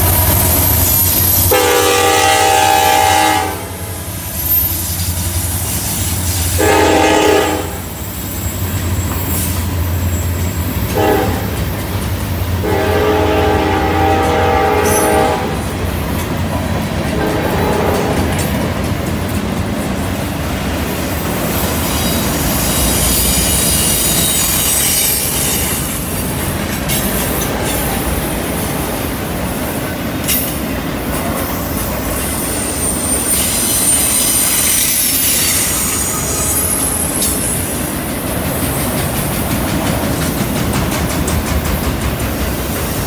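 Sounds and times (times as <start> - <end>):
wheel flange squeal: 0.0 - 1.6, 31.4 - 37.8
steel wheels rumbling on rail: 0.0 - 43.0.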